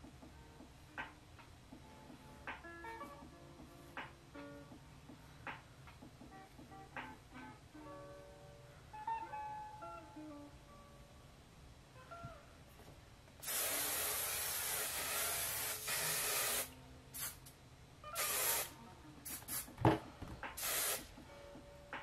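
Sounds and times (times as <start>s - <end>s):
aerosol hairspray spraying: 13.4s - 17.4s, 18.2s - 19.7s, 20.6s - 21.1s.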